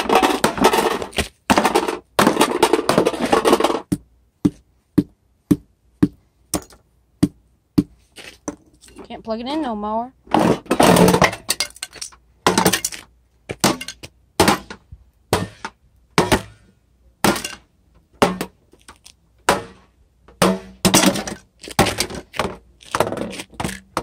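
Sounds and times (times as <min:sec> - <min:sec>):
slow cooker slammed on concrete: 0:13.5 - 0:16.6, 0:19.4 - 0:24.0.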